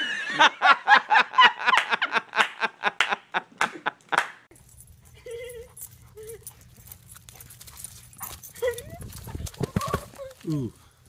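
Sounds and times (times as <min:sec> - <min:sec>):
person laughing: 0:00.0 - 0:04.3.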